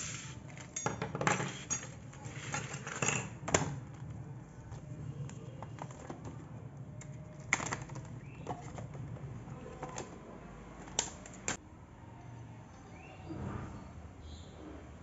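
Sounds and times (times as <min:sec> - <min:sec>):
plastic packaging clicking and crackling: 0:02.6 - 0:11.6.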